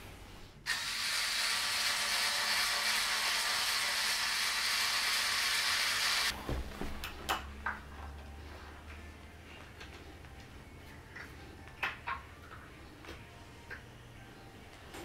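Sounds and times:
cordless drill running: 0.7s - 6.3s.

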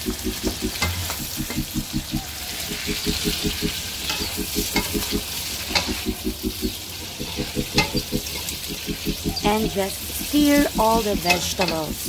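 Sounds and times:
fast pulsing low hum: 0.0s - 12.0s
food sizzling in a pan: 0.0s - 12.0s
spatula scraping a pan: 7.2s - 8.5s.

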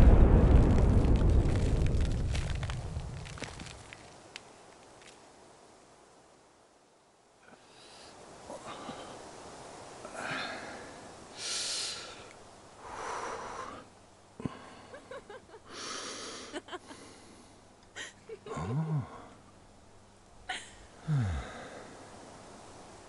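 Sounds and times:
old man breathing heavily: 10.0s - 15.0s, 15.7s - 17.7s, 21.0s - 22.2s.

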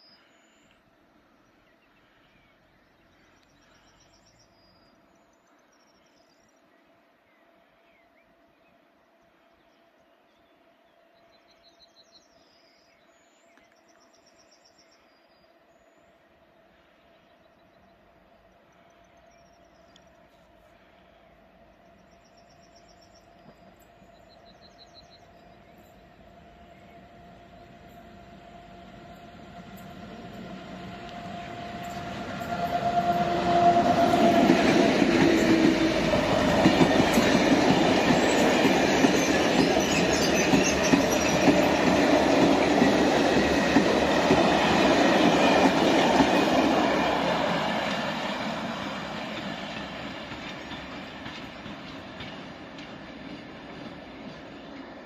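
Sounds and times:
freight train wheels on rails: 17.0s - 55.0s.

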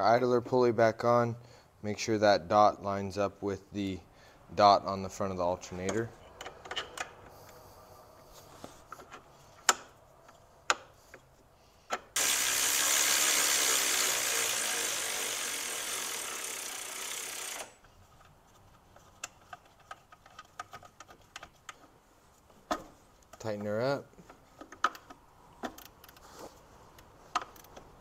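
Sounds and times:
electric ratchet running: 12.2s - 17.8s.

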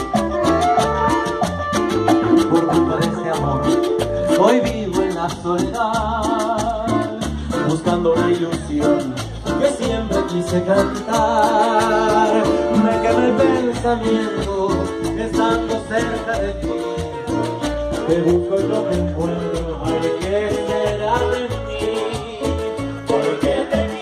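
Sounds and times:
flute melody: 0.0s - 5.3s
acoustic guitar: 0.0s - 24.0s
congas and cajon: 0.0s - 24.0s
keyboard: 0.0s - 24.0s.

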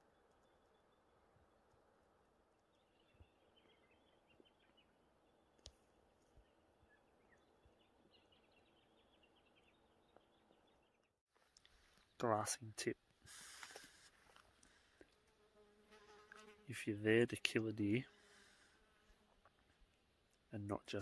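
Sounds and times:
faint bird chirping: 2.5s - 12.4s.

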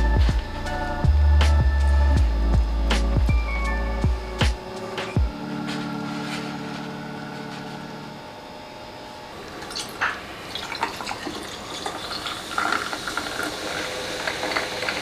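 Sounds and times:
fizzy drink pouring into glass: 9.6s - 15.0s
fizz popping and crackling: 10.5s - 15.0s.

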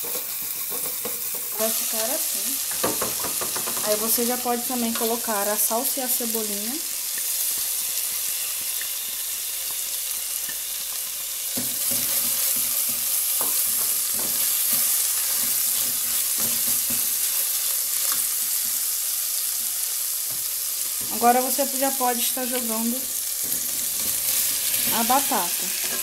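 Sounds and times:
sauce sizzling in oil: 0.0s - 26.0s
spatula scraping pan: 23.3s - 26.0s.

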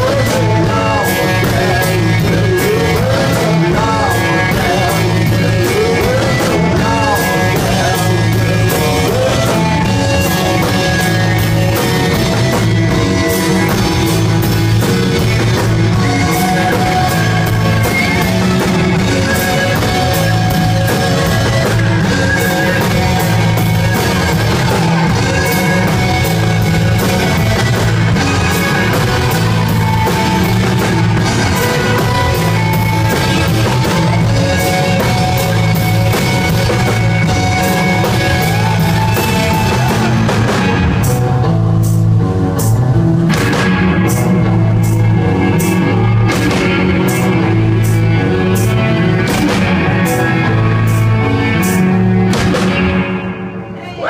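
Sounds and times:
rock band playing loud: 0.0s - 54.0s.

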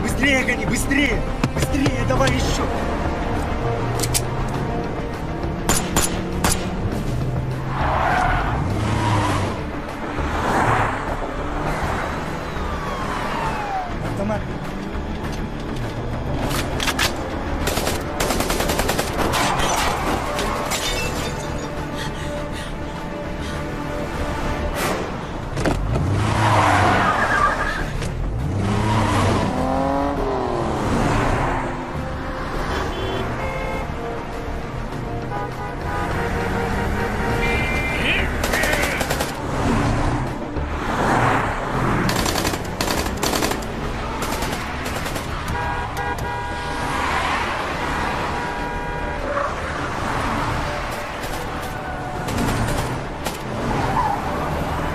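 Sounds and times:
car engines revving: 0.0s - 54.9s
car horn sounding: 32.6s - 34.0s, 35.1s - 38.5s, 45.5s - 46.9s, 48.0s - 49.6s.

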